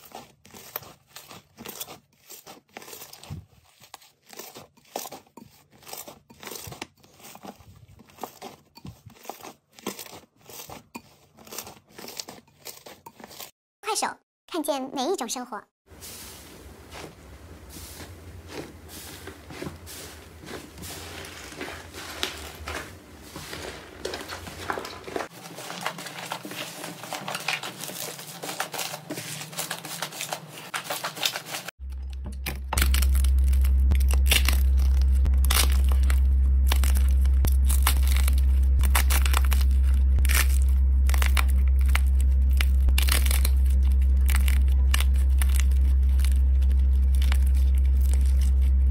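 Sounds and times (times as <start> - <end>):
crunchy crackling of crusted slime: 0.0 - 13.5, 32.7 - 48.9
slime crackling and tearing: 0.0 - 13.5, 32.8 - 48.9
steady low hum: 15.9 - 26.2, 31.8 - 48.9.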